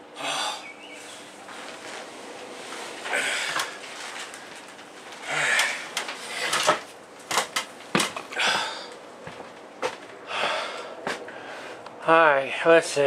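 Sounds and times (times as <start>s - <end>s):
man breathing hard: 0.0s - 1.3s, 3.0s - 3.8s, 5.2s - 6.7s, 8.3s - 9.0s, 10.2s - 11.8s
knocks of wood and stepladder: 5.5s - 8.4s.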